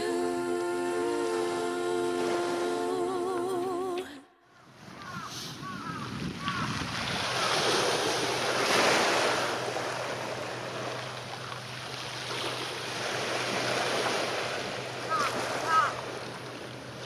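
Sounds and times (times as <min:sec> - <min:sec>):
wind on microphone: 0:04.7 - 0:08.8
harbour water washing: 0:05.8 - 0:17.0.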